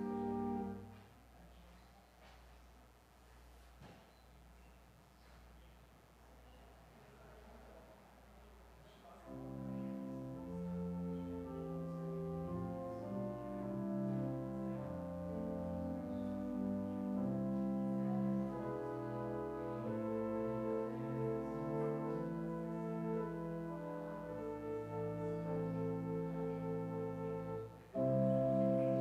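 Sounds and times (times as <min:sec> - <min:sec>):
church organ chords: 0:00.0 - 0:01.0, 0:09.2 - 0:29.0.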